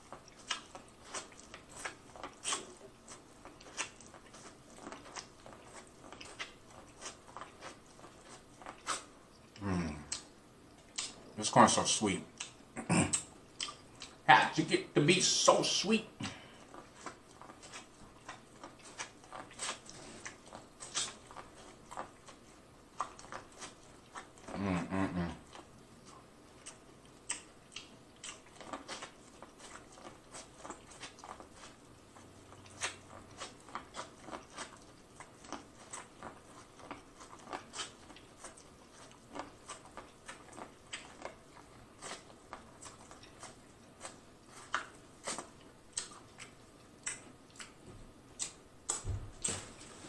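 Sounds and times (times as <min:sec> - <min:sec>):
chewing corn on the cob: 0:00.0 - 0:49.9.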